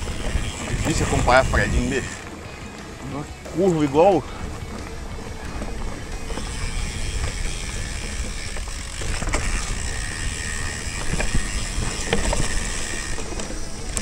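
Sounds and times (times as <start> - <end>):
bike tyres rumbling on dirt: 0.0 - 14.0
bike clicks and knocks: 3.4 - 14.0.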